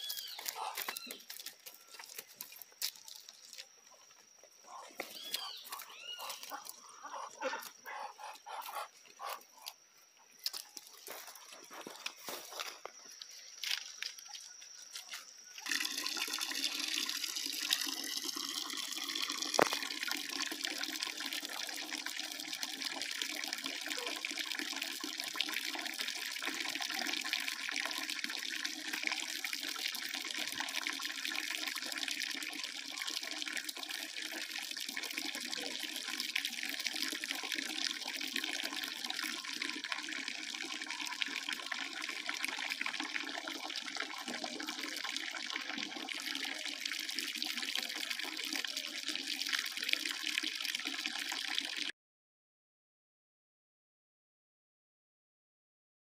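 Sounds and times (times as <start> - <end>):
water splashing into basin: 15.6 - 51.9.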